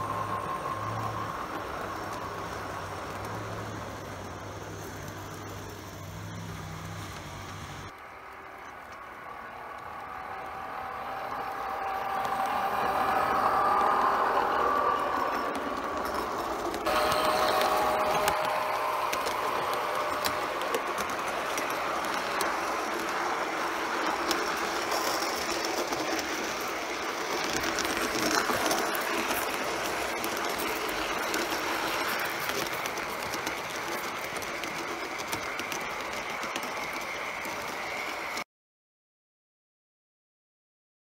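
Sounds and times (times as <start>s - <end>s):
model train rolling on track: 0.0s - 38.4s
wheels clicking: 0.0s - 38.4s
high whine: 7.2s - 38.4s.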